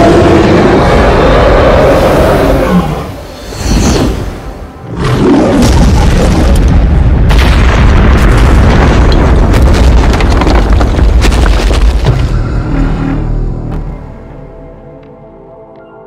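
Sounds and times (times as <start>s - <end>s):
crackling: 5.2s - 13.9s
heavy impact boom and rumble: 5.6s - 14.2s.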